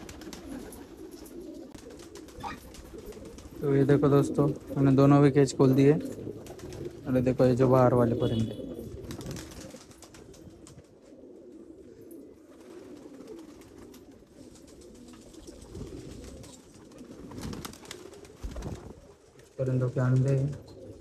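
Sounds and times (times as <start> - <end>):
wings flapping: 0.0 - 4.9, 6.0 - 7.2, 8.8 - 11.0, 12.4 - 21.0
pigeons cooing: 0.0 - 21.0.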